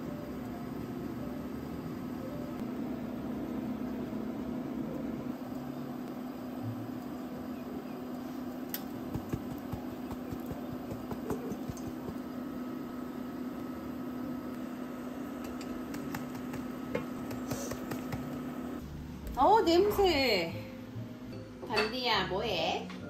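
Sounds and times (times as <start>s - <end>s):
machine humming: 0.0s - 21.3s
shaker sprinkling: 9.0s - 12.3s, 15.5s - 18.5s.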